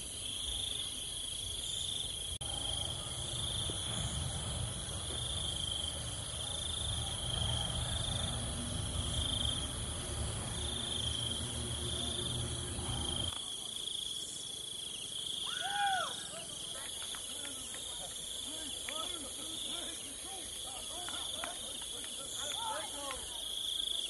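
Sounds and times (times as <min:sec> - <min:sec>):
insects chirring: 0:00.0 - 0:24.0
low rumbling noise: 0:02.4 - 0:13.4.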